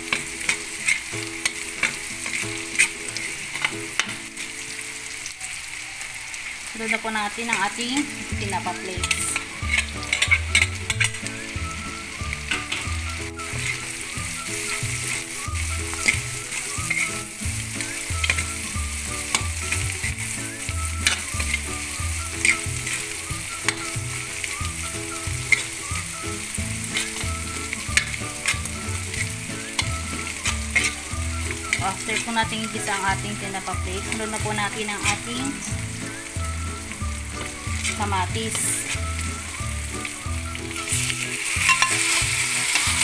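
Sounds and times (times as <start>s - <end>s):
fish sizzling in butter: 0.0s - 43.0s
metal spatula scraping pan: 0.1s - 4.2s, 8.6s - 11.4s, 12.4s - 35.9s, 40.8s - 43.0s.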